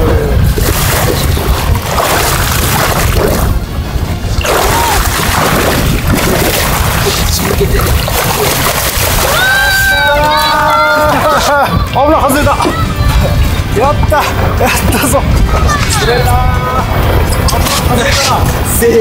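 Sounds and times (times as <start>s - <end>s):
background music: 0.0s - 19.0s
wind noise on microphone: 0.0s - 19.0s
water sloshing against hull: 0.4s - 10.0s.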